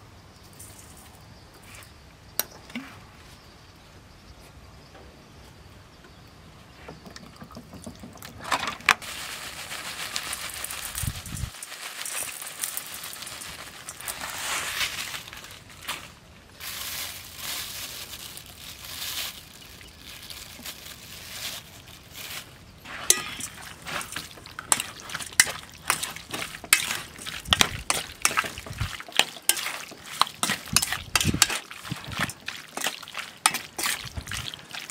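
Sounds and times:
flakes falling into bowl: 9.0s - 16.0s
plastic bag rustling: 9.0s - 34.9s.

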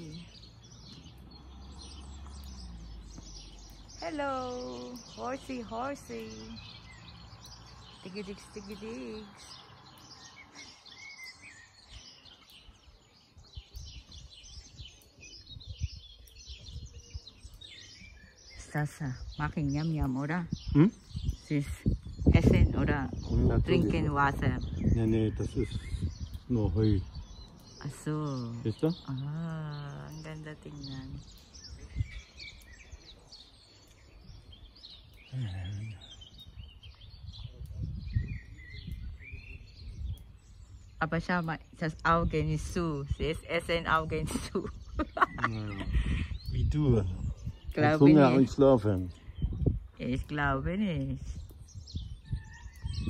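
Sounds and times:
small birds chirping: 0.0s - 53.0s.

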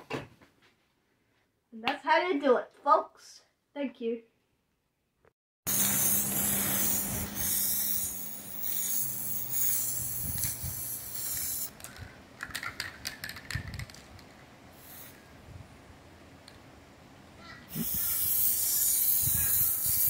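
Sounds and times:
spray can hissing: 5.7s - 11.8s, 14.8s - 15.2s, 17.7s - 20.0s
light clicks and rattles: 11.8s - 14.4s.

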